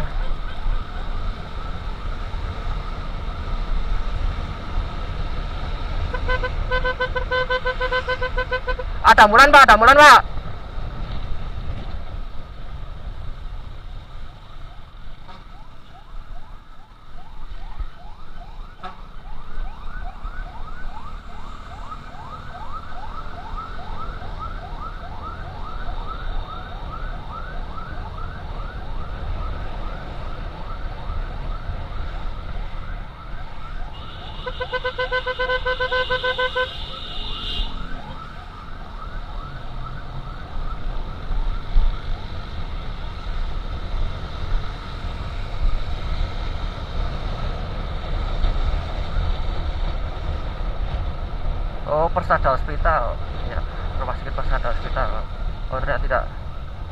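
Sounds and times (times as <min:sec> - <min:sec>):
motorcycle road noise: 0:00.0 - 0:56.9
buzzing horn: 0:06.1 - 0:09.0, 0:33.9 - 0:37.9
ambulance siren yelping: 0:13.8 - 0:43.9.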